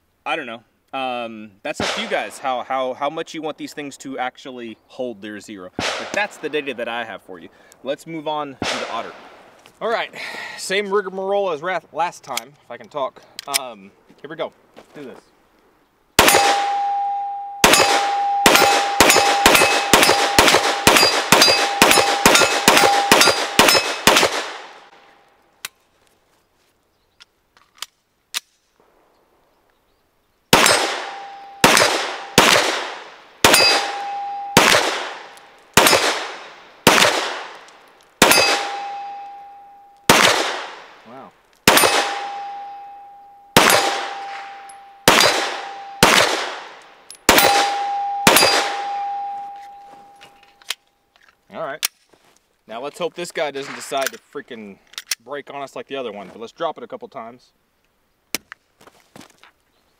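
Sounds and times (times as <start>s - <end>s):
pistol shots: 1.8s - 2.4s, 5.8s - 6.6s, 8.6s - 9.4s, 16.2s - 16.9s, 17.6s - 24.9s, 30.5s - 39.4s, 40.1s - 41.0s, 41.6s - 42.8s, 43.6s - 49.2s
steel target ringing: 16.2s - 24.2s, 30.6s - 32.6s, 33.4s - 36.2s, 38.2s - 40.2s, 41.7s - 46.2s, 47.2s - 50.4s.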